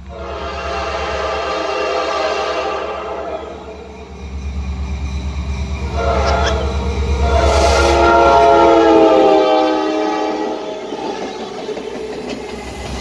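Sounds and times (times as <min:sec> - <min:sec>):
locomotive horn chord: 0:00.0 - 0:03.9, 0:05.8 - 0:10.9
diesel locomotive engine rumble: 0:00.0 - 0:13.0.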